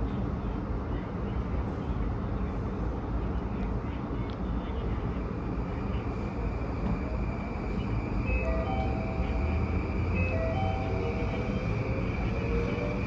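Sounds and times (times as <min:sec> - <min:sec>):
low rumble of train: 0:00.0 - 0:13.0
station chime melody: 0:08.3 - 0:12.8.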